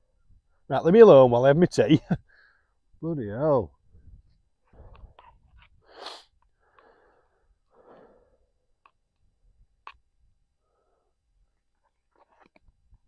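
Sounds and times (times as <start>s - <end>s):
man breathing: 2.2s - 2.8s, 4.6s - 8.7s, 10.6s - 11.3s.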